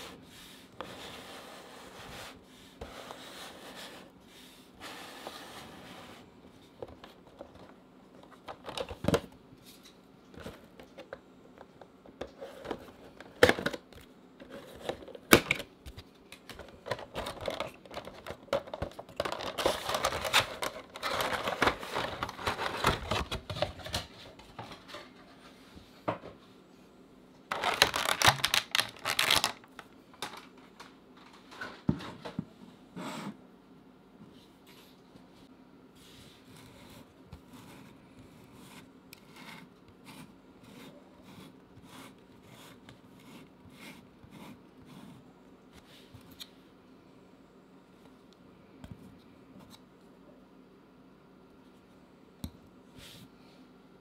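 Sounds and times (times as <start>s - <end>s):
packaging crinkling: 16.9s - 23.9s, 27.5s - 30.5s.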